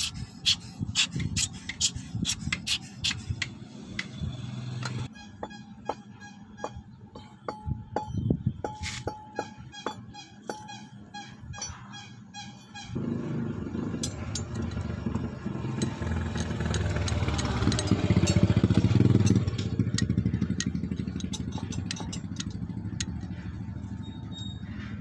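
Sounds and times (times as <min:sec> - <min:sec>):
clicks and clinks of small parts: 0:14.0 - 0:23.5.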